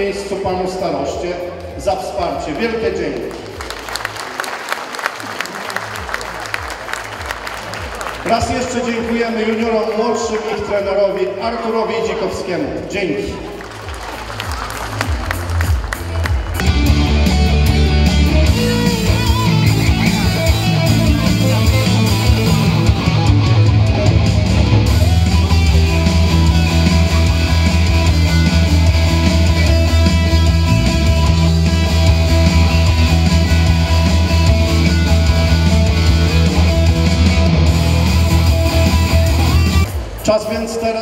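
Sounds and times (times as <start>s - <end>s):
steady bass: 14.3s - 40.4s
rock guitar: 15.1s - 40.0s.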